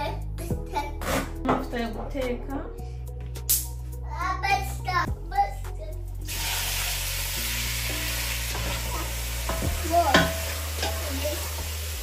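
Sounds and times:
chicken sizzling in hot oil: 6.3 - 12.0
wooden spoon knocking against pot: 9.5 - 11.0.

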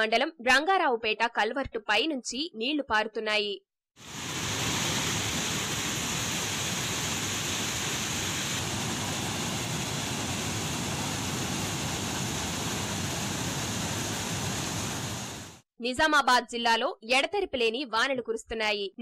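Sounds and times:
water rushing over rocks: 4.0 - 15.6.

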